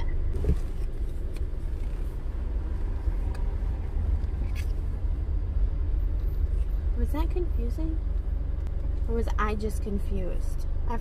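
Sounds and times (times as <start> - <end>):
car engine rumble: 0.0 - 11.0.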